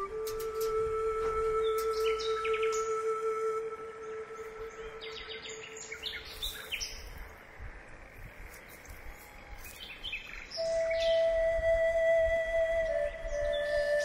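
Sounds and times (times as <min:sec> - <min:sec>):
background music note: 0:00.0 - 0:06.2
faint outdoor hiss: 0:00.0 - 0:14.0
small birds chirping: 0:01.6 - 0:03.1, 0:04.0 - 0:11.4.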